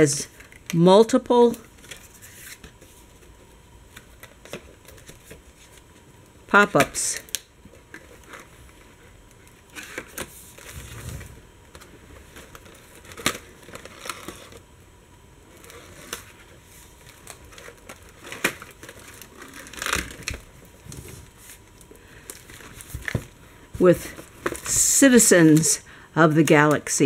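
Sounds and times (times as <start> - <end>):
stiff paper rustling and crinkling: 7.7 - 14.6, 15.5 - 24.8.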